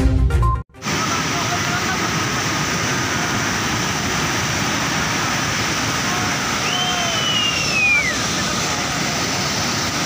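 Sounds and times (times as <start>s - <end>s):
muddy torrent rushing: 0.8s - 10.0s
high whistle-like tone: 6.6s - 8.2s.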